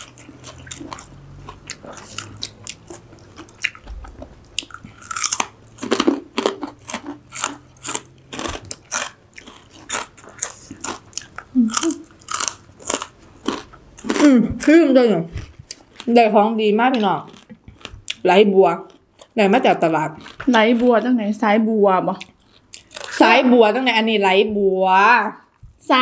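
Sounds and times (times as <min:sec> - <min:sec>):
crisp chewing crunches: 0:00.0 - 0:14.4, 0:17.2 - 0:18.2, 0:20.2 - 0:21.1.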